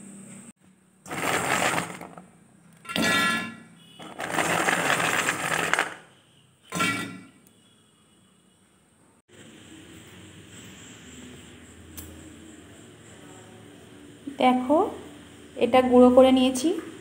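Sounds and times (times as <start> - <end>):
lentils rattling in a metal jar: 1.1 - 2.2, 4.0 - 6.0.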